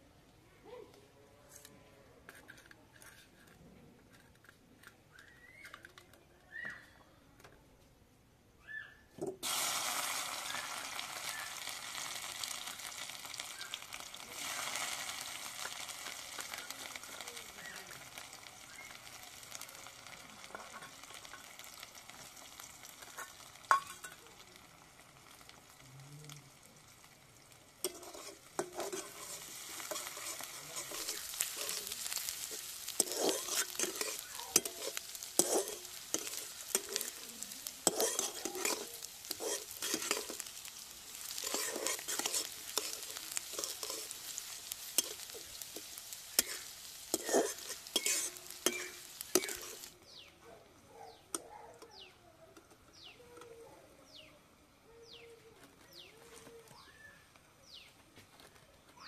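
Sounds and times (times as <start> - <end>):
metal spatula scraping a pan: 1.5 - 4.9, 20.1 - 21.8, 22.8 - 24.3, 27.8 - 49.9
onions sizzling in oil: 9.1 - 50.4.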